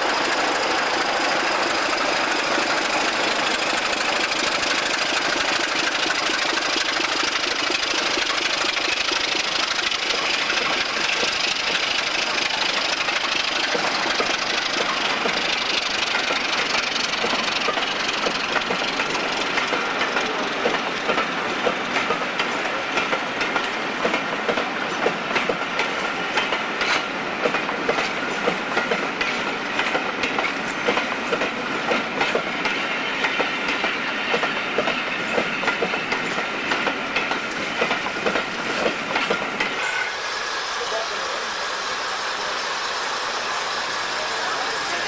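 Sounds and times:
train wheels clattering over rail joints: 0:00.0 - 0:41.4
train rumble: 0:00.0 - 0:45.0.

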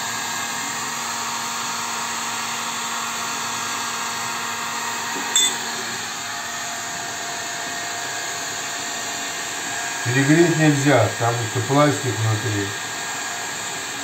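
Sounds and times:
heat gun fan humming: 0:00.0 - 0:14.0.

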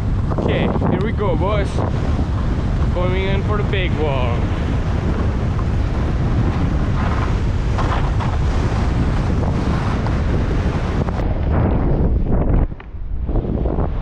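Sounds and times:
wind buffeting microphone: 0:00.0 - 0:14.0
skis sliding on snow: 0:05.2 - 0:11.1.

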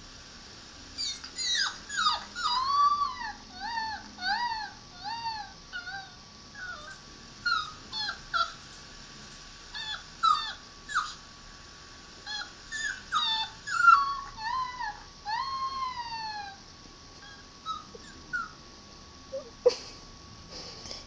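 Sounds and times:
dog whimpering: 0:01.0 - 0:08.6, 0:09.7 - 0:11.2, 0:12.2 - 0:16.6, 0:17.2 - 0:18.6, 0:19.3 - 0:19.9.

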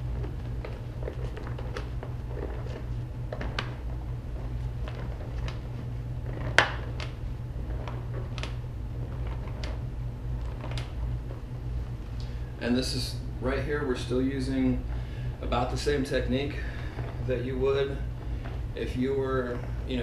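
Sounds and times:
tire rubbing against rim: 0:00.0 - 0:12.1
steady low hum: 0:00.0 - 0:20.0.

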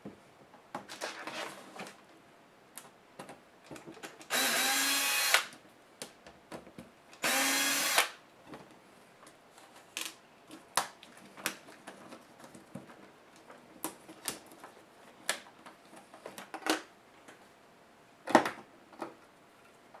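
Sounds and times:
electric screwdriver whirring: 0:04.3 - 0:05.5, 0:07.2 - 0:08.2.

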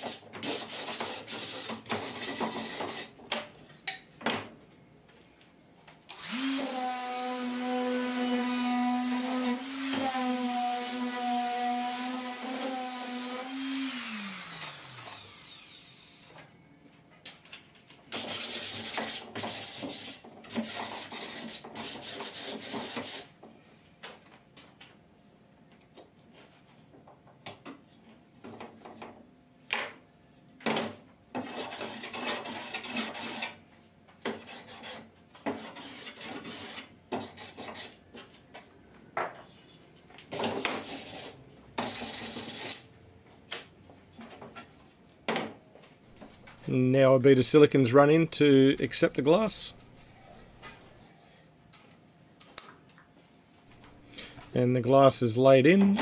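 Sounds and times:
hand plane on wood: 0:00.0 - 0:03.1, 0:31.4 - 0:33.6, 0:34.3 - 0:38.0
rasping sanding strokes: 0:00.0 - 0:03.1, 0:18.2 - 0:23.3, 0:34.4 - 0:38.0, 0:40.4 - 0:42.8.

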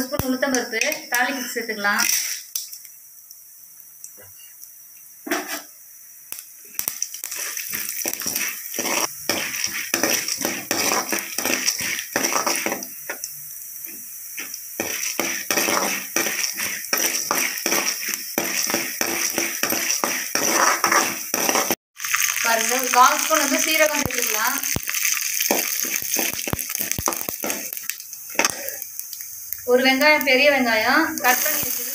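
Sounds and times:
oil sizzling: 0:00.0 - 0:31.9
metal spoon scraping a pan: 0:02.0 - 0:02.5, 0:07.2 - 0:12.9, 0:14.4 - 0:21.8, 0:25.4 - 0:27.7.

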